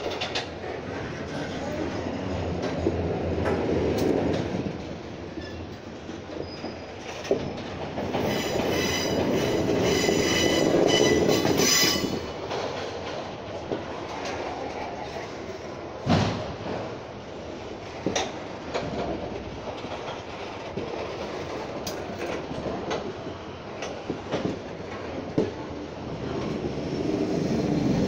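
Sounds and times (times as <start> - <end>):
train rumbling: 0.0 - 28.0
train wheels squealing: 5.3 - 5.6, 6.3 - 12.3.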